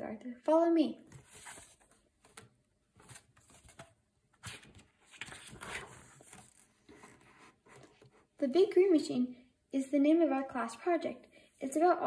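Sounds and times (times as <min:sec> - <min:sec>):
paper page turning: 0:01.1 - 0:07.9.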